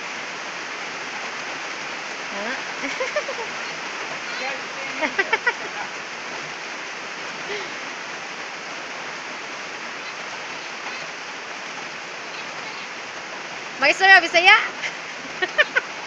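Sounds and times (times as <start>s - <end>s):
steady rain falling: 0.0s - 16.0s
person's voice: 2.3s - 3.3s, 4.3s - 5.9s, 13.8s - 14.8s.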